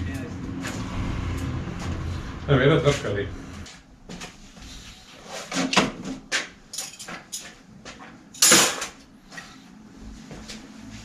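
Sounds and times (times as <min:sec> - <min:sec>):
parts clinking on shelves: 0:06.7 - 0:09.5.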